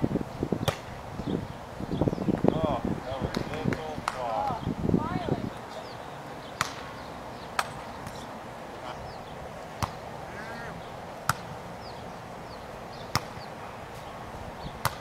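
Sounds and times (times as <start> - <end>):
volleyball slaps: 0.6 - 0.9, 3.3 - 4.6, 6.6 - 6.9, 7.6 - 8.2, 9.8 - 10.0, 11.2 - 11.5, 13.1 - 13.5.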